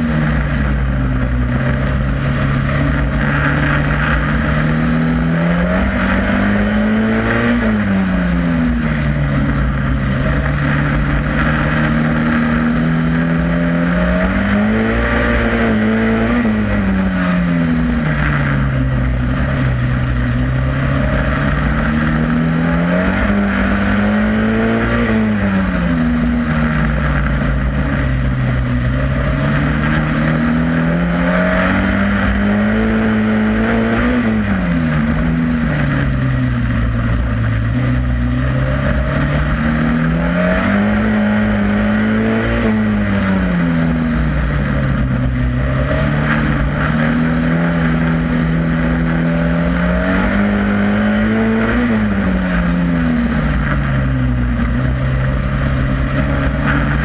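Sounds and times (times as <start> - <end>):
racing car engine revving: 0.0 - 57.0
wind and road noise: 0.0 - 57.0.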